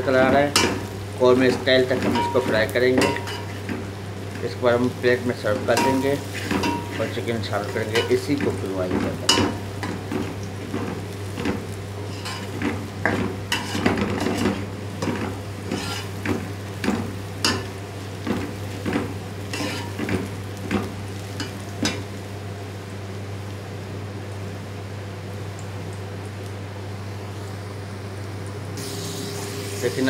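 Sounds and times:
onions sizzling in oil: 0.0s - 30.0s
metal spatula scraping pot: 12.1s - 12.6s, 13.5s - 15.1s, 15.7s - 16.1s, 19.5s - 20.0s.

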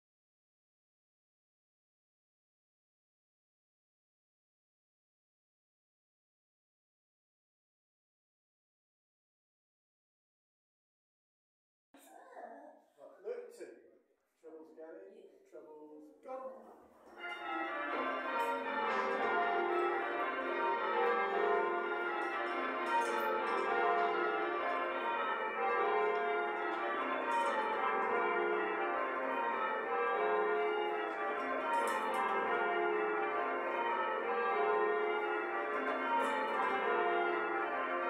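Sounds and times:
church bells ringing: 17.1s - 38.0s.

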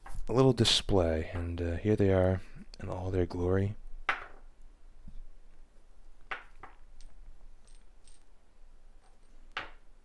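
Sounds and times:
coins clinking: 6.9s - 8.3s.

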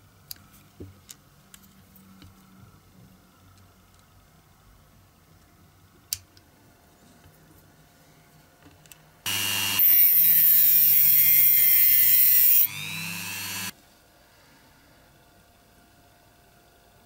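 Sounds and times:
rotary tool grinding metal: 9.3s - 13.7s.

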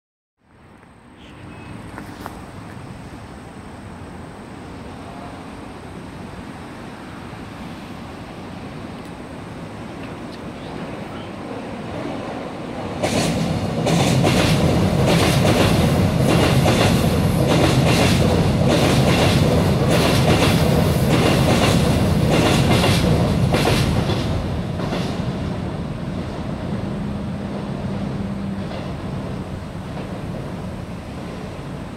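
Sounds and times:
train rumbling over bridge: 0.5s - 31.9s.

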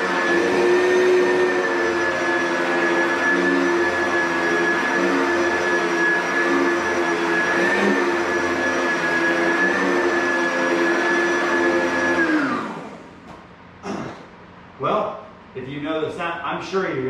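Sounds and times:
vacuum cleaner motor whining: 0.0s - 13.3s.

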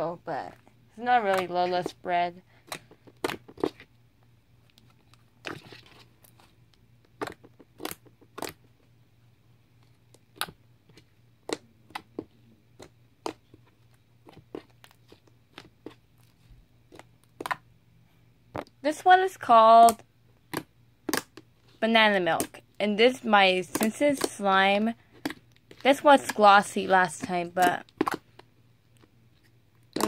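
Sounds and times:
slime clicking and popping: 2.6s - 3.8s, 7.1s - 8.7s, 16.9s - 17.6s, 19.9s - 21.5s, 27.6s - 28.5s.

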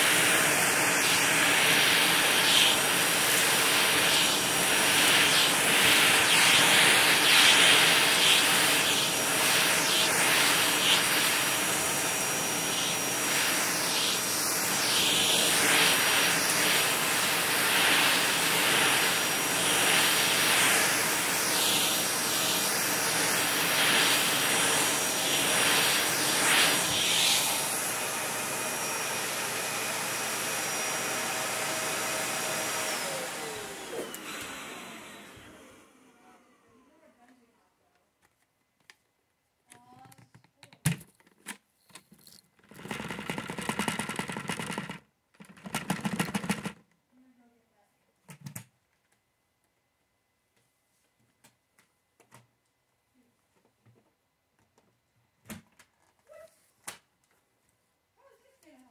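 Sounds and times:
vacuum motor winding down: 0.0s - 36.9s
vacuum cleaner on carpet: 0.0s - 37.3s.

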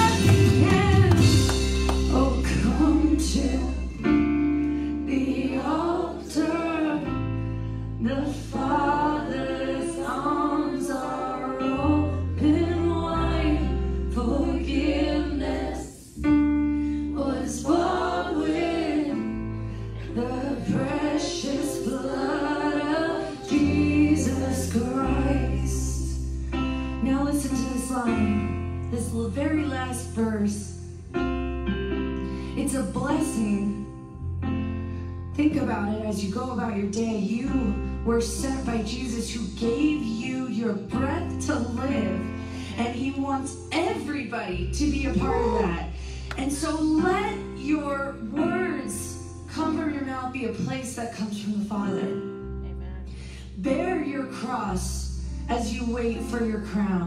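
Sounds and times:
voices singing together: 0.0s - 4.0s, 5.1s - 7.3s, 8.0s - 16.2s, 17.2s - 26.1s
gospel band playing: 0.0s - 26.7s
bass guitar long notes: 0.0s - 50.3s, 51.7s - 57.0s.

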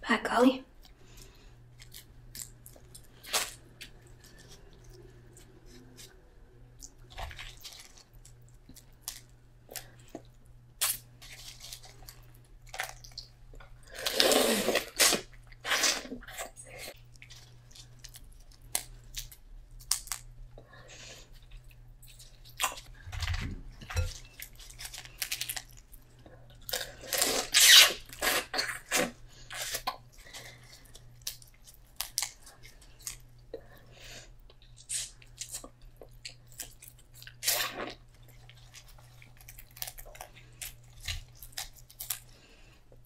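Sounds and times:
steady low hum: 0.0s - 43.0s
chewing: 28.3s - 42.4s.

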